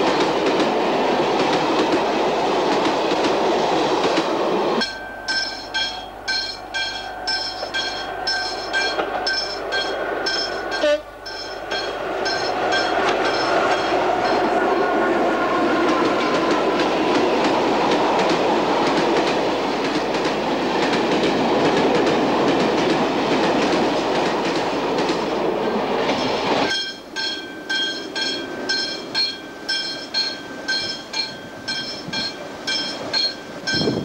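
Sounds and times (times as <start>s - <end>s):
distant train: 0.0s - 34.0s
train wheels rumbling on rails: 0.0s - 34.0s.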